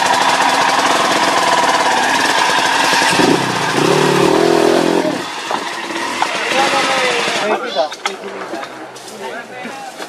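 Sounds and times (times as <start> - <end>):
dirt bike engine revving: 0.0 - 7.6.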